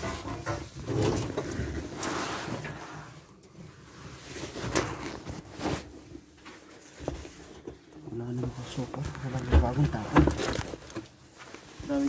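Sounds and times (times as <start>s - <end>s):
sharp knocks and clatters: 0.0s - 1.6s.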